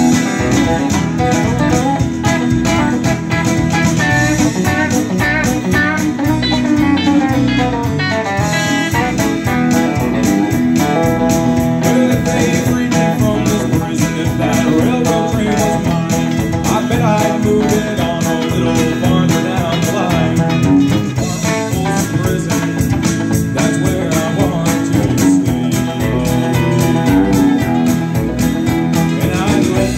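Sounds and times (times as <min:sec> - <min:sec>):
live band playing: 0:00.0 - 0:29.9
man singing: 0:08.4 - 0:29.9.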